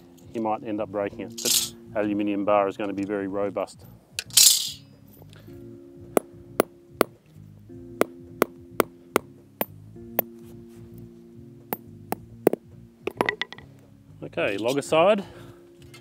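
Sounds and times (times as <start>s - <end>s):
background music with chords: 0.0s - 16.0s
hammer striking nail: 8.0s - 9.8s.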